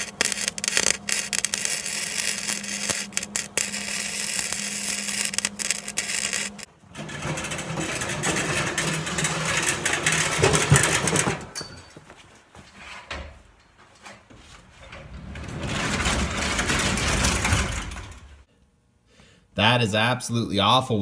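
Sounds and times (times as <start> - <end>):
snowblower engine running: 0.0 - 11.0.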